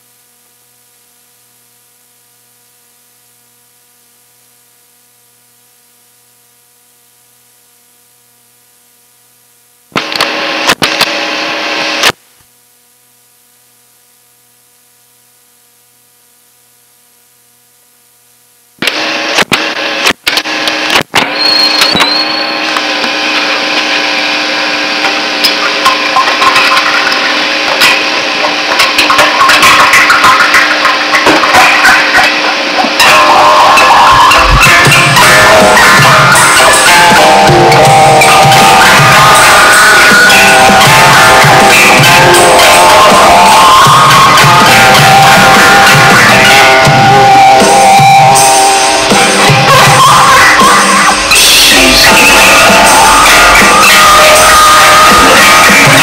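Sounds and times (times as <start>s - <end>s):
distorted band music with drums: 9.8s - 12.2s, 18.8s - 56.0s.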